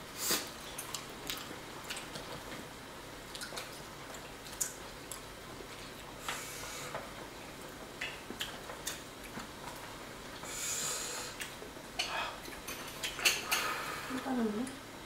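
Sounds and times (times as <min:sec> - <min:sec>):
breathy hiss: 0:06.2 - 0:07.0, 0:10.4 - 0:11.4, 0:13.4 - 0:14.5.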